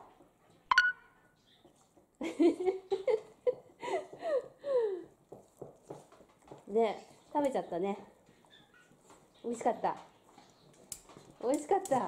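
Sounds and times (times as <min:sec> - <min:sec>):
woman laughing softly: 0:02.2 - 0:05.1.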